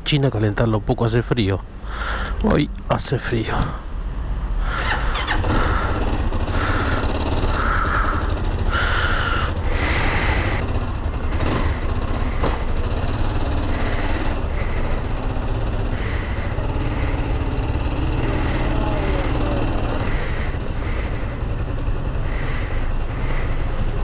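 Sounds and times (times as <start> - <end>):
motorcycle engine idling: 4.8 - 24.0.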